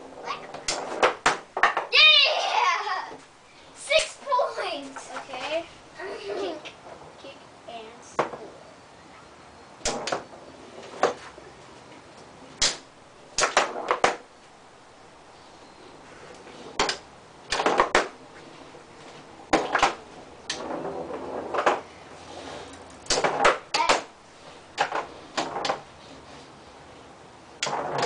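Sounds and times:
foosball clacks and knocks: 0:00.5 - 0:01.9, 0:09.8 - 0:10.3, 0:12.6 - 0:14.2, 0:16.7 - 0:18.2, 0:19.5 - 0:21.9, 0:23.0 - 0:24.1, 0:24.7 - 0:25.9, 0:27.6 - 0:28.0.

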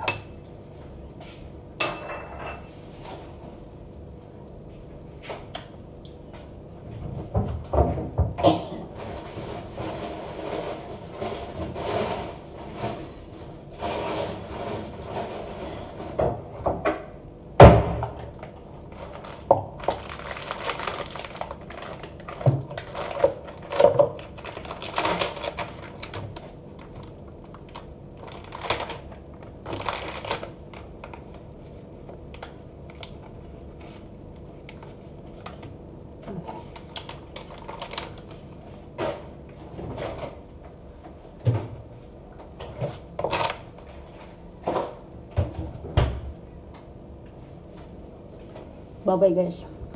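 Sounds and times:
foil wrapper crinkling: 0:18.4 - 0:35.6, 0:36.6 - 0:38.5, 0:43.2 - 0:43.7.

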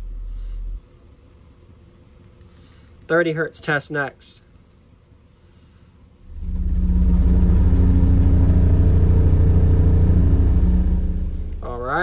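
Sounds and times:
deep subwoofer test tone: 0:06.3 - 0:12.0.

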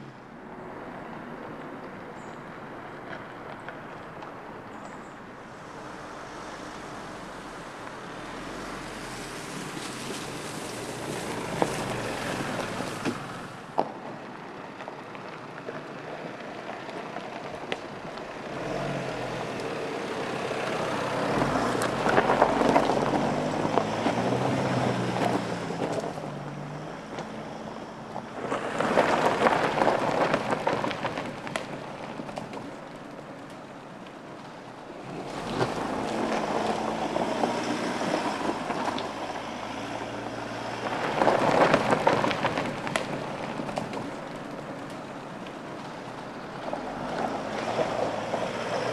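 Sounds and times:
tyres and wind rushing: 0:00.0 - 0:48.9
wheels knocking over logs: 0:28.2 - 0:39.2, 0:39.8 - 0:48.8.

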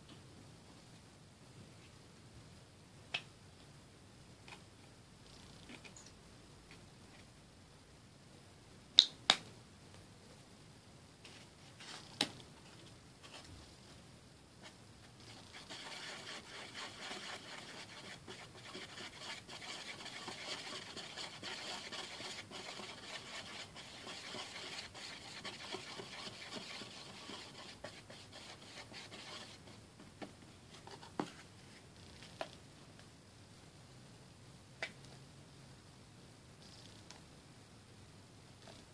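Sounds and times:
paintbrush rubbing on paper plate: 0:15.2 - 0:29.8.

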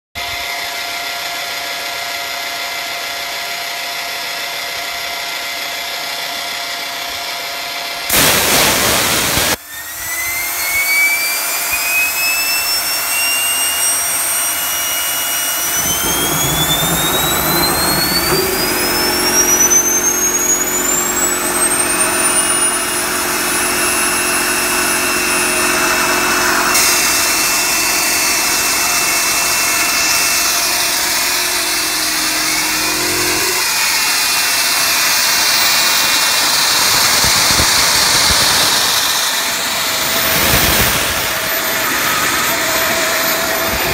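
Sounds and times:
turbine whine rising in pitch: 0:00.2 - 0:43.9
jet engine rushing: 0:08.1 - 0:34.0, 0:35.3 - 0:43.9
low hum: 0:11.8 - 0:33.6.

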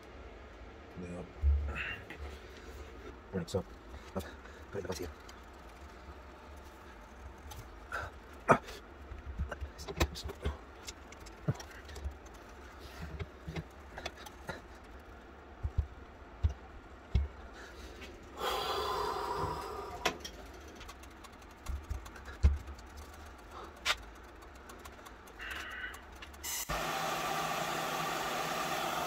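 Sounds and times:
strained breath of effort: 0:17.5 - 0:20.3, 0:25.4 - 0:26.1.

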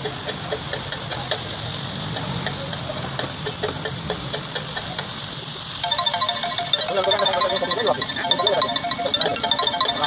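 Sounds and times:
meat sizzling in oil: 0:00.0 - 0:05.8.

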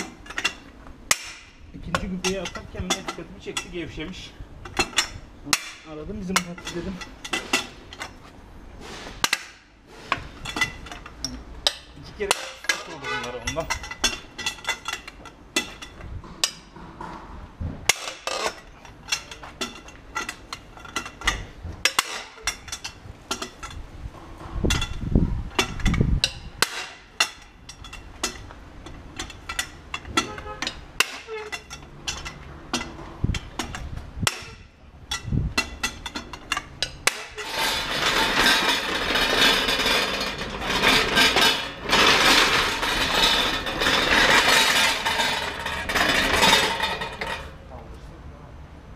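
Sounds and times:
socket wrench clinking on wheel nuts: 0:24.6 - 0:47.5.

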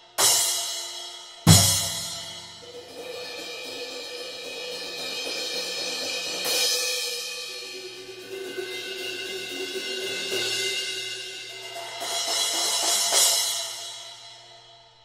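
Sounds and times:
cymbals played with drumsticks: 0:00.0 - 0:14.7
cymbal crash: 0:01.5 - 0:05.3.

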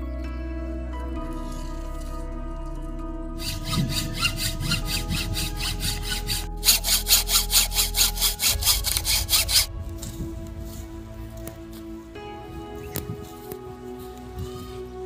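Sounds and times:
saw cutting bamboo: 0:03.4 - 0:09.7.

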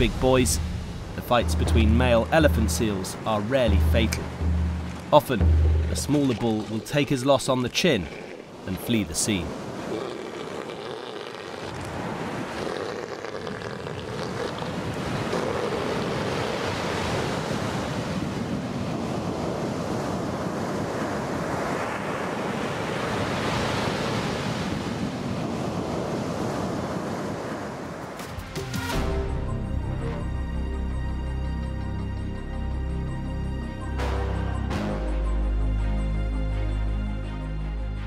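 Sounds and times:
ocean surf breaking on beach: 0:00.0 - 0:28.4.

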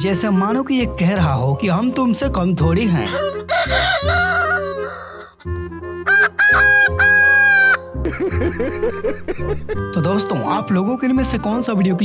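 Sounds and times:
rooster crowing: 0:03.1 - 0:05.3, 0:06.1 - 0:07.8.

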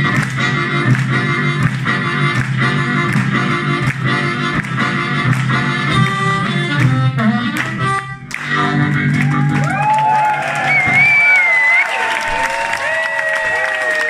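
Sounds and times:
amplified harmonica: 0:00.0 - 0:09.6.

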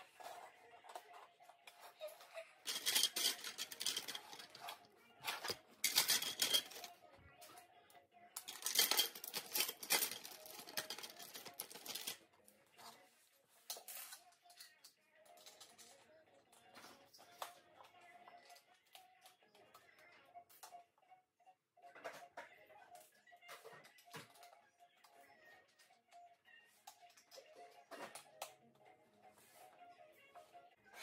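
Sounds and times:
plastic bricks clattering: 0:02.7 - 0:06.9, 0:08.4 - 0:12.2.

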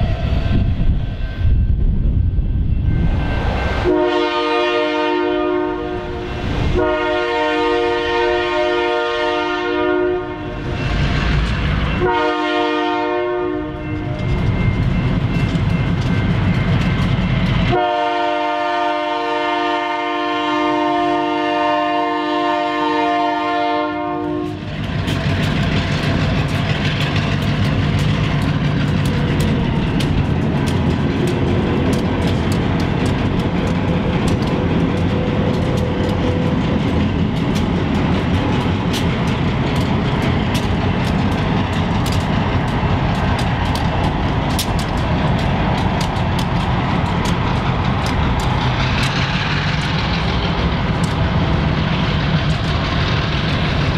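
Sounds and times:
locomotive rumbling: 0:00.0 - 0:53.9
locomotive air horn blasts: 0:03.8 - 0:10.6, 0:12.0 - 0:14.3, 0:17.7 - 0:24.7
wheels clacking over rail joints: 0:05.2 - 0:20.2, 0:20.9 - 0:53.9.

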